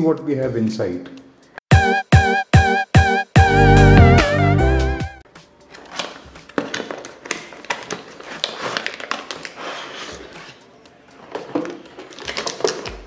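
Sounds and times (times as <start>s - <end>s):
cardboard and plastic rustling: 5.6s - 13.0s.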